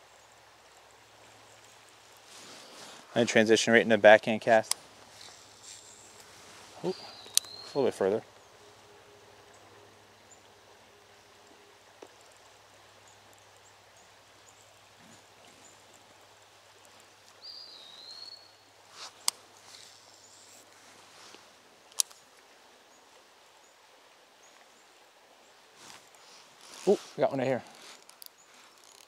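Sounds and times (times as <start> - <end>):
faint steady hiss: 0.0 - 29.0
bird chirp gliding down: 6.8 - 8.6.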